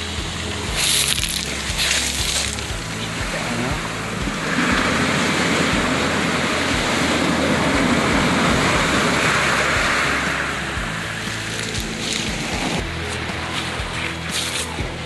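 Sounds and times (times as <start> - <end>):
surf washing up pebble beach: 0.0 - 15.0.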